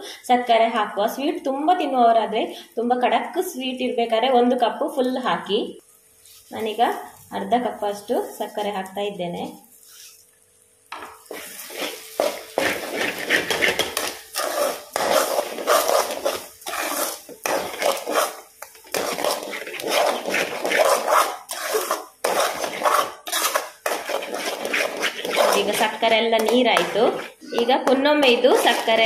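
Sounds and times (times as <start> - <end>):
spoon scraping metal pan: 11.3 - 29.0.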